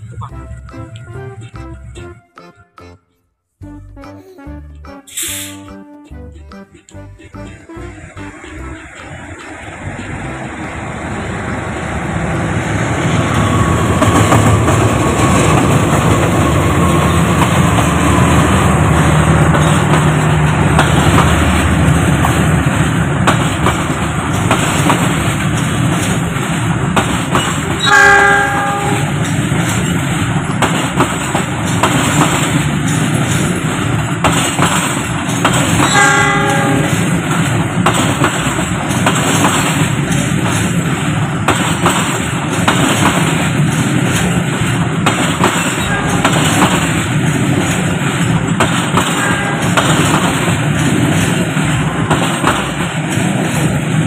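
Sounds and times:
train wheels clattering: 13.1s - 54.0s.

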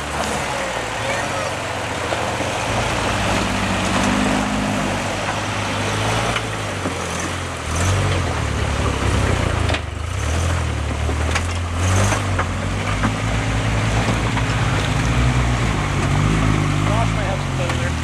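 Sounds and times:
truck engines revving: 0.0s - 18.0s
tyres spinning in mud: 0.0s - 18.0s.

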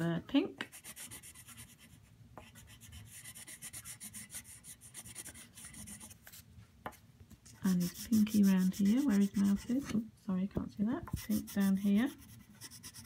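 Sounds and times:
crayon scribbling on paper: 0.7s - 6.1s, 7.6s - 10.0s, 11.1s - 13.0s.

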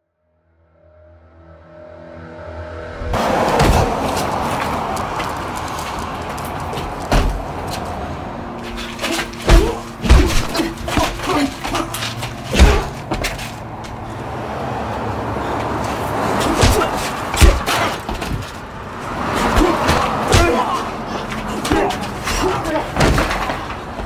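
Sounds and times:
steady background rush: 0.8s - 24.0s
punch thuds: 9.4s - 11.4s, 12.5s - 13.4s, 16.6s - 18.4s.

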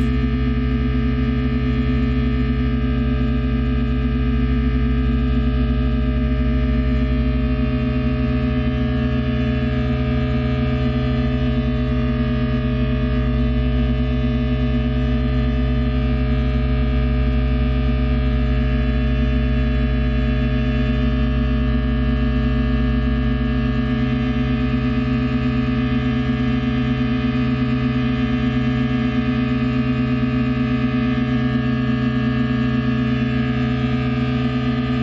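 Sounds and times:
fast throbbing low beat: 0.0s - 1.0s
drone music with held tones: 0.0s - 35.0s.

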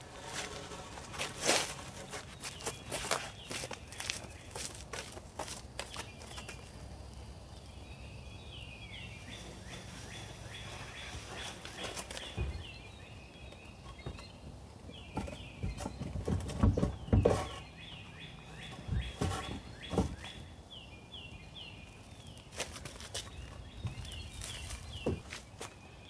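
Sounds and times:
bird chirping: 5.8s - 26.0s
wooden boards knocking: 15.1s - 17.6s.

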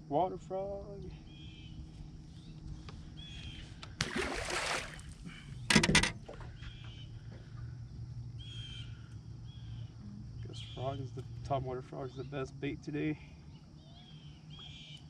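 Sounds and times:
steady low hum: 0.0s - 15.0s
loud rattling knock: 5.7s - 6.2s
short bird calls: 8.4s - 9.9s.

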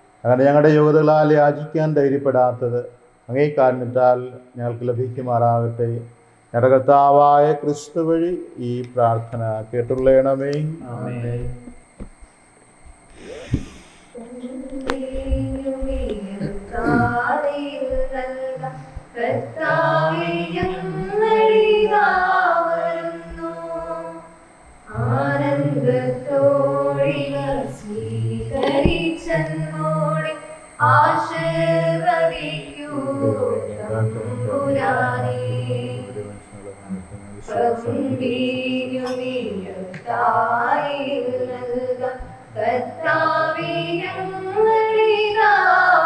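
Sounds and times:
church choir singing a hymn: 14.2s - 46.0s.

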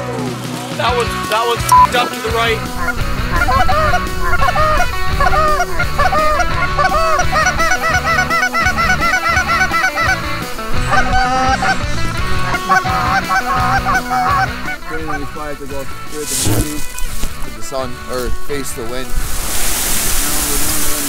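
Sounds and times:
geese honking: 1.9s - 17.1s.

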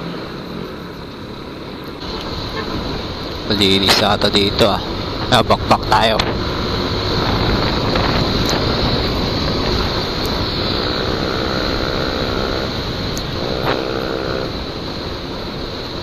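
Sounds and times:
steady pitched drone: 0.0s - 16.0s
wind on microphone: 4.8s - 16.0s
scooter engine running: 6.0s - 16.0s.

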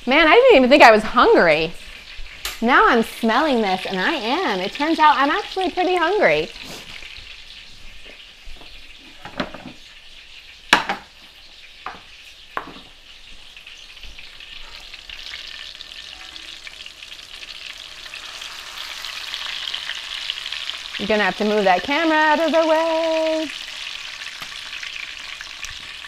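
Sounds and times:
food sizzling in hot oil: 0.0s - 26.0s.

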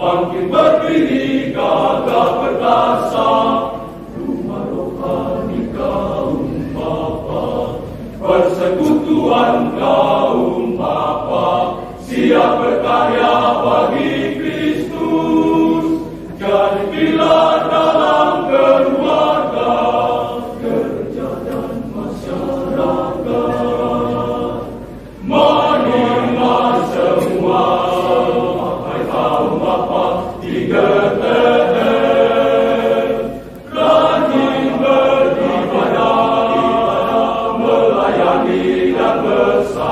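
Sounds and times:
men's choir singing: 0.0s - 39.9s.

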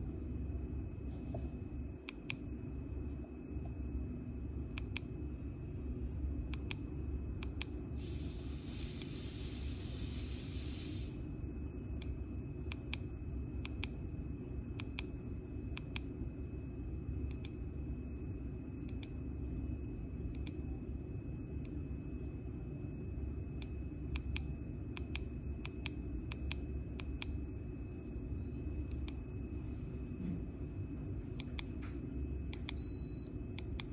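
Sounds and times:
faint high whine: 0.0s - 33.9s
hiss: 8.0s - 11.2s.

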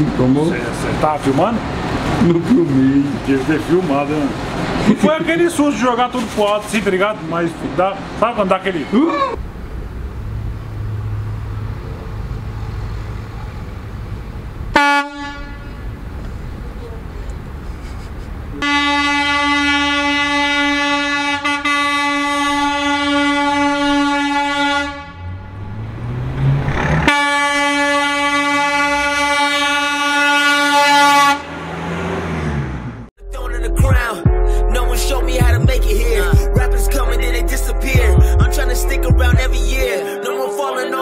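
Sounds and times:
low engine rumble: 0.0s - 20.3s
vehicle horn honking: 14.7s - 15.9s, 18.6s - 25.7s, 27.0s - 31.6s.

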